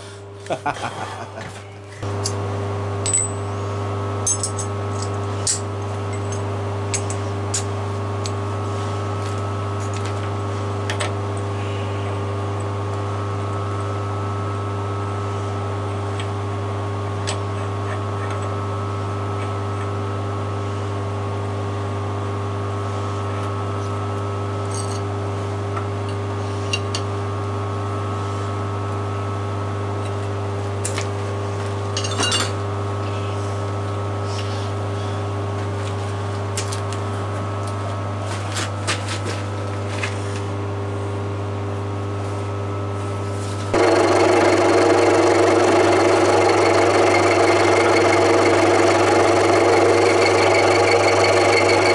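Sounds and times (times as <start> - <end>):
steady machine hum: 0.0 - 51.9
end mill cutting metal: 43.8 - 51.9.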